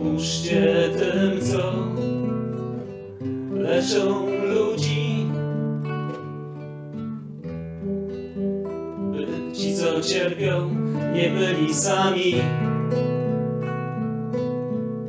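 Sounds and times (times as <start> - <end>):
man singing: 0.0 - 2.6, 3.5 - 5.6, 9.1 - 12.9
classical guitar playing: 0.0 - 15.0.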